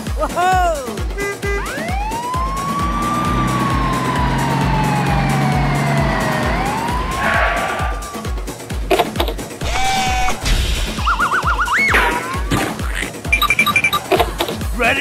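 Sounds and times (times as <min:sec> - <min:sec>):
background music with thumping beat: 0:00.0 - 0:15.0
siren wailing: 0:01.3 - 0:08.6.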